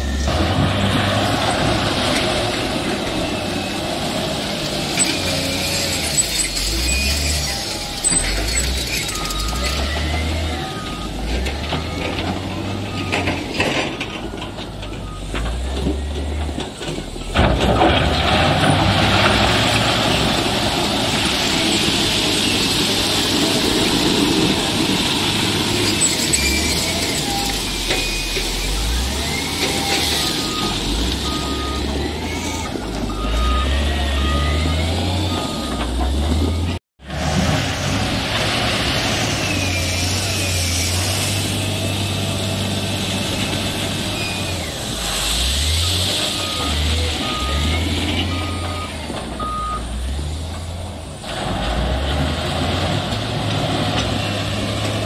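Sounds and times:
diesel engine under load: 0:00.0 - 0:55.0
reversing alarm beeps: 0:06.2 - 0:13.6, 0:26.3 - 0:36.8, 0:45.7 - 0:49.9.

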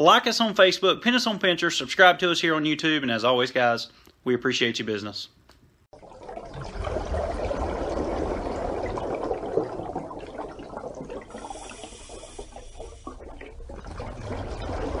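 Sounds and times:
running water churning: 0:06.0 - 0:15.0.

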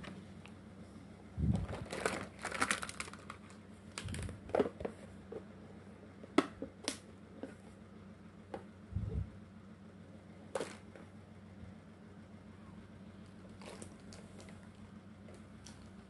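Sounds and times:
plastic toy pieces clattering: 0:01.7 - 0:03.4.

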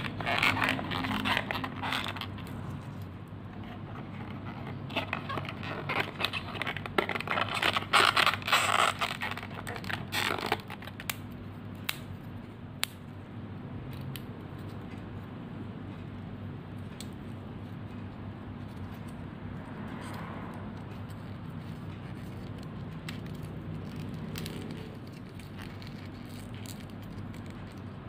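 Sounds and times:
card scraping and rustling: 0:00.0 - 0:11.0.

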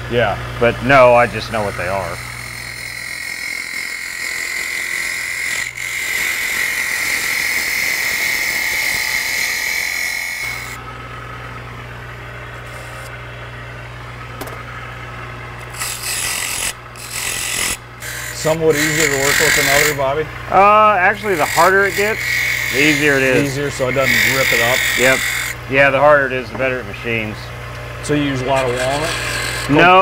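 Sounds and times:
lathe motor humming: 0:00.6 - 0:25.8, 0:26.5 - 0:30.0
chisel cutting wood on lathe: 0:01.0 - 0:10.8, 0:12.6 - 0:13.1, 0:15.6 - 0:20.1, 0:21.0 - 0:25.6, 0:28.3 - 0:30.0.

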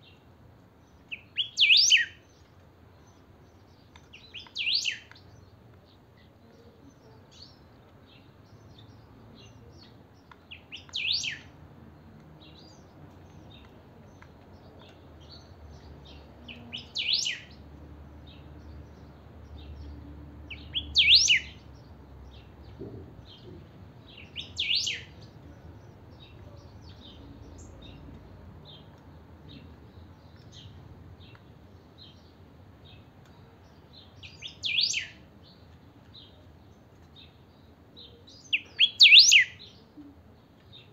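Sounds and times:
bird sharp whistled phrases: 0:01.4 - 0:02.2, 0:21.0 - 0:21.5, 0:34.6 - 0:35.2, 0:38.6 - 0:39.6.

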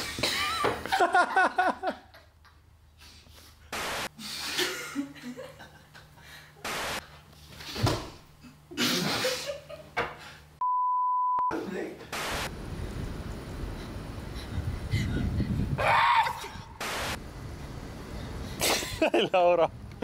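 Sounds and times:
people laughing: 0:00.2 - 0:02.3.

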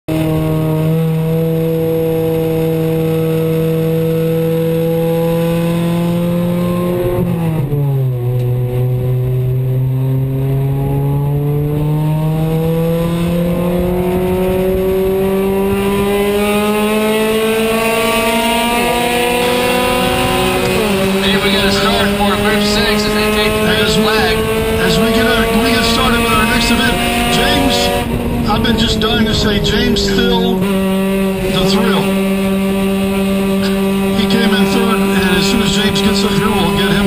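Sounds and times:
race car engine revving: 0:00.1 - 0:37.0.

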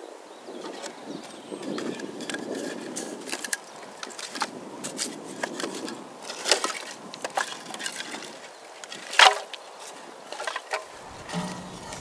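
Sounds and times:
wood cracking and snapping: 0:03.2 - 0:09.6.

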